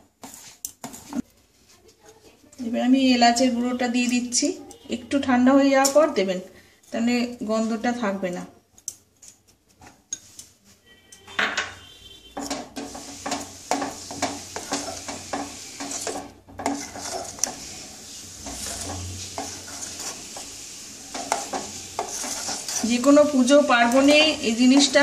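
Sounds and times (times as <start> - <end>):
spoon scraping a steel pan: 10.1 - 25.0.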